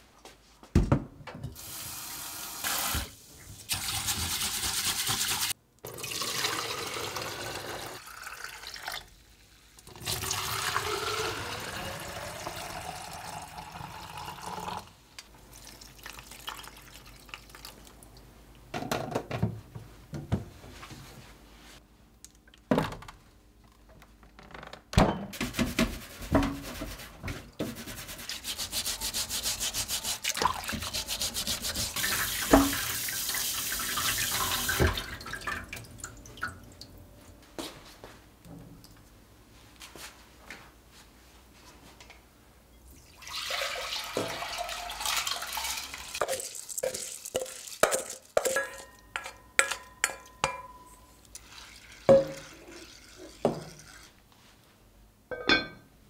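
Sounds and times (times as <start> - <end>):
brush scrubbing vegetable: 25.9 - 32.5
tap water running into jar: 43.0 - 48.5.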